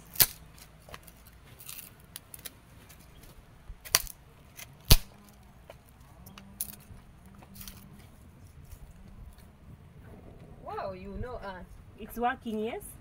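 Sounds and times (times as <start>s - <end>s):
small fire crackling: 0.0s - 12.8s
fire popping sharply: 4.8s - 5.2s.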